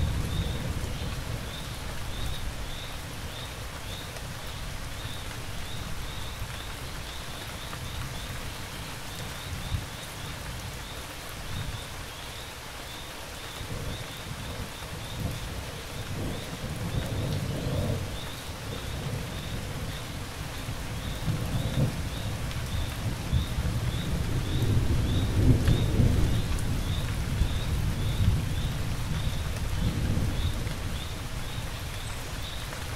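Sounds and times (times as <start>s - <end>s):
rain falling: 0.0s - 32.9s
thunder rumbling: 13.7s - 31.7s.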